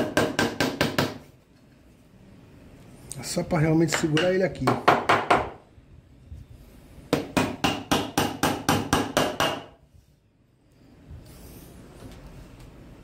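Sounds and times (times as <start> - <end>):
hammer driving a nail into wood: 0.0 - 1.3, 3.9 - 5.6, 7.1 - 9.8.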